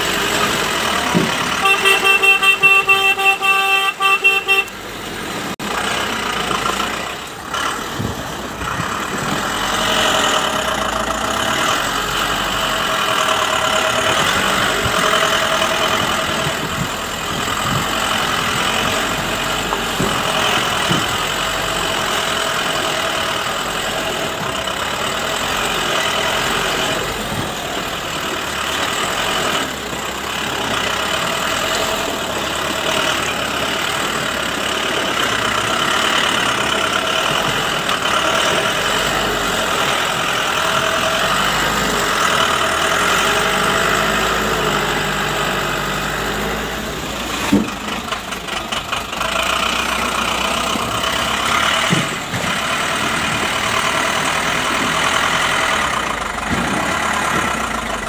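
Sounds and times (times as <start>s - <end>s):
truck diesel engine running: 0.0s - 58.0s.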